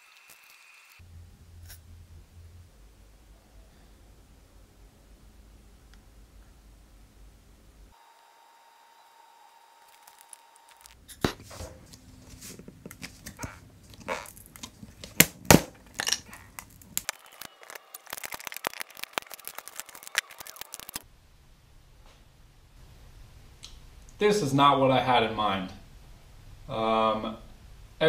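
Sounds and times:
fast crackling: 0:13.3 - 0:21.0.

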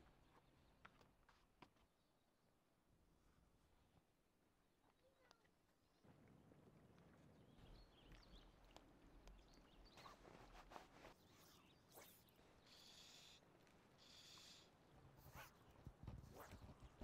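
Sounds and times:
small birds chirping: 0:07.4 - 0:13.4, 0:14.0 - 0:15.7.

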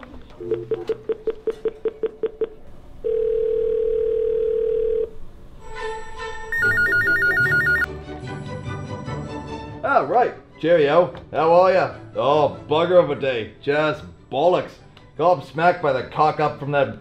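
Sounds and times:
ringback tone: 0:05.9 - 0:07.9
electronic phone ring warbling: 0:06.5 - 0:07.9
keypad beeps: 0:06.5 - 0:07.9.

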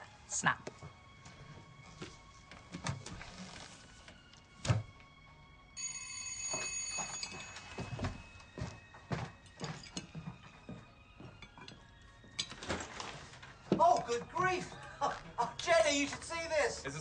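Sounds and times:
electric bell ringing: 0:05.8 - 0:10.3
soft knocks and clinks: 0:09.5 - 0:10.5.

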